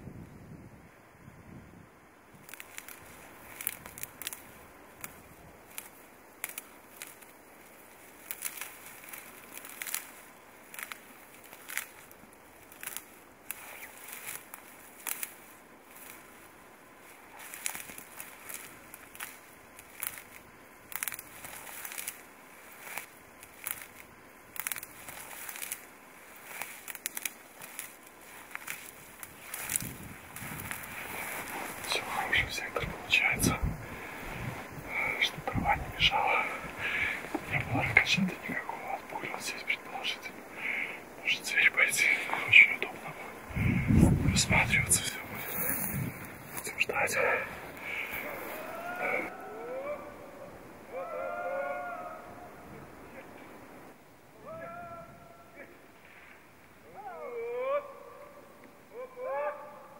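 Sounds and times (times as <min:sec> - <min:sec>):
dry grass crackling and rustling: 0:02.1 - 0:49.4.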